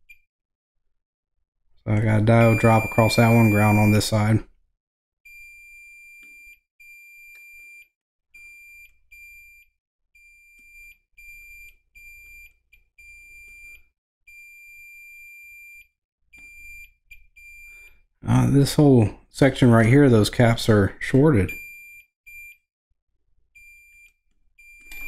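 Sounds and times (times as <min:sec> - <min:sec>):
multimeter continuity beeps: 0:02.0 - 0:04.3, 0:05.3 - 0:18.0, 0:21.4 - 0:22.6, 0:23.6 - 0:25.0.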